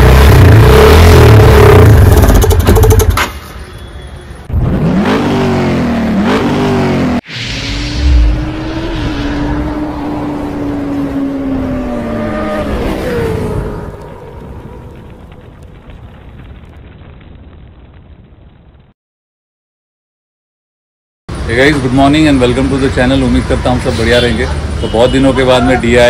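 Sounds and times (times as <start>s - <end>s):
motorcycle engine revving: 0.0s - 3.2s.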